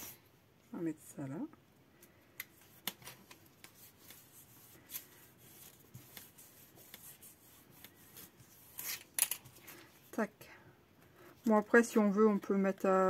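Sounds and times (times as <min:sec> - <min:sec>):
spatula scratching paper: 0:02.6 - 0:09.7.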